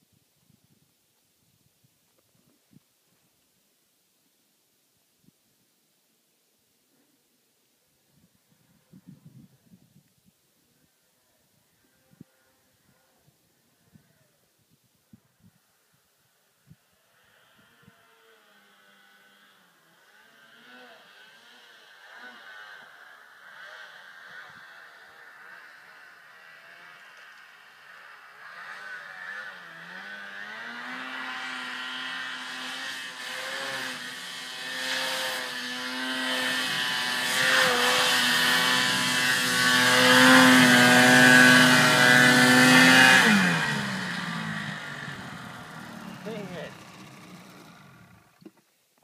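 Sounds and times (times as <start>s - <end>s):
snowmobile engine revving: 17.1s - 48.5s.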